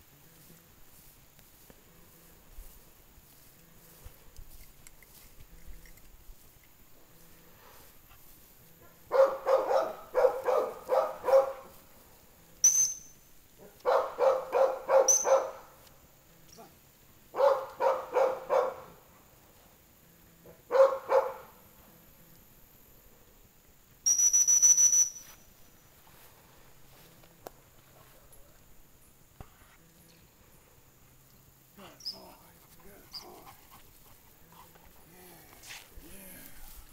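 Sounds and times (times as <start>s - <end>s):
dog barking: 8.8s - 11.7s, 13.6s - 15.8s, 17.3s - 19.0s, 20.5s - 21.6s
dog-training whistle blasts: 12.6s - 13.2s, 15.0s - 15.6s, 24.0s - 25.4s.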